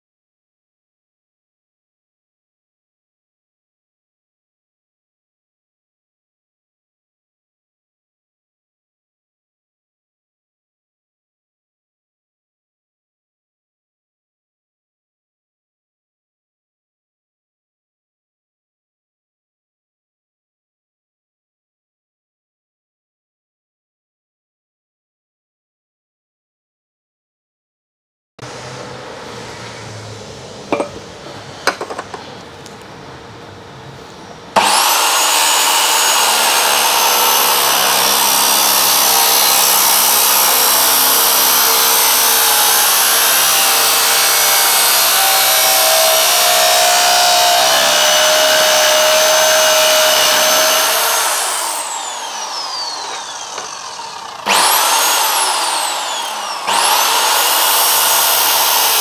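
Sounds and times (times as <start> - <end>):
electric grinder grinding metal: 34.6 - 59.0.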